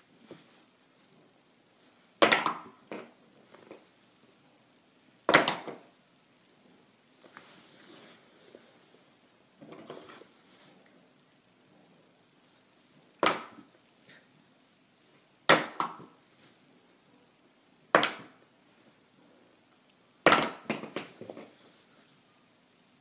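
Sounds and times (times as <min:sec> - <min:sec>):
marker bouncing and clattering: 0:02.2 - 0:03.8, 0:05.3 - 0:05.8, 0:17.9 - 0:18.4, 0:20.3 - 0:21.6
plastic marker landing with clack: 0:20.3 - 0:21.5.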